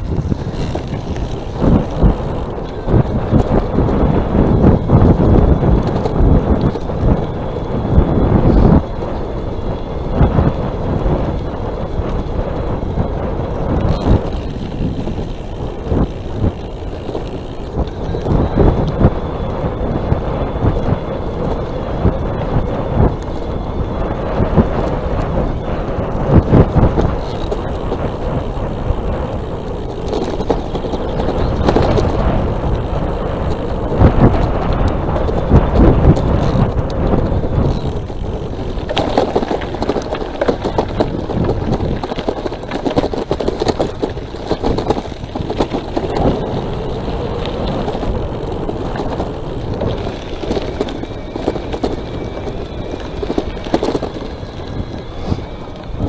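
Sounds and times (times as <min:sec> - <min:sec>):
tyre rumble on road: 0:00.0 - 0:56.0
wind buffeting microphone: 0:00.0 - 0:56.0
knocks and rattles over bumps: 0:26.3 - 0:56.0.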